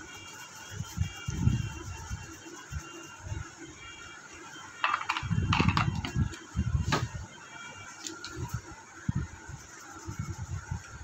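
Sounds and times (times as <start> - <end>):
objects knocking on workbench: 4.8 - 6.2.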